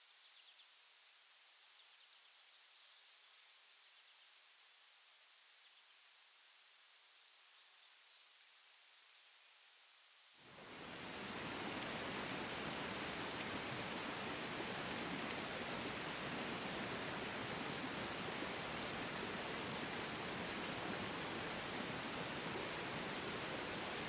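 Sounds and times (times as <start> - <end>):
cricket chirping: 0.0 - 24.0
rushing stream water: 10.4 - 24.0.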